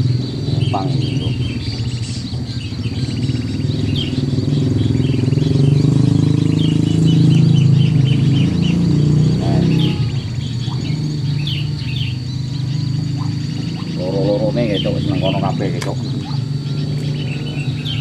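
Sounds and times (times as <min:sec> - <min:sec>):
bulbuls chirping: 0:00.0 - 0:18.0.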